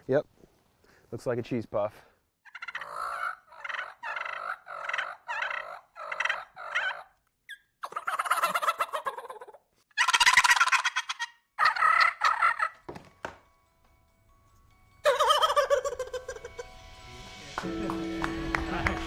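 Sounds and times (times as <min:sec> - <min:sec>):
turkey call gobbles: 0:02.5 - 0:12.8, 0:15.0 - 0:16.6
turkey call notes: 0:02.5 - 0:12.9, 0:15.0 - 0:16.8.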